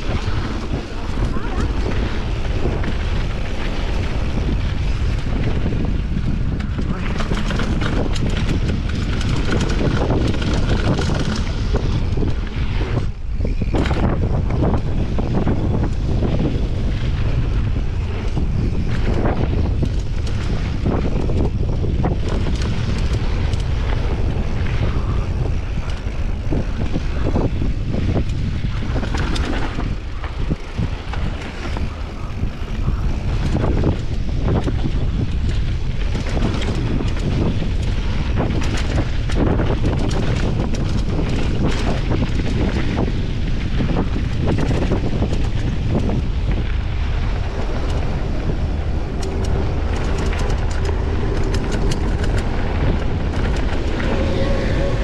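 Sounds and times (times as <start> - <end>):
bike rattling and knocking: 0.0 - 55.0
tyres rolling on dirt: 0.0 - 55.0
wind buffeting microphone: 0.0 - 55.0.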